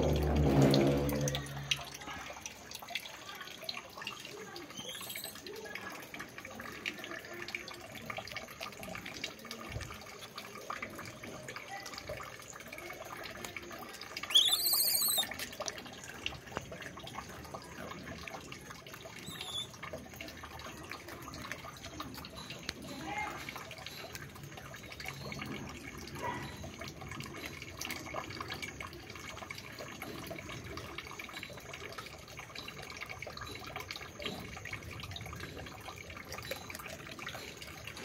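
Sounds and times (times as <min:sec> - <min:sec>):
trickling water: 0:00.0 - 0:38.0
bird chirping: 0:04.7 - 0:05.4, 0:14.3 - 0:15.3, 0:19.2 - 0:19.8.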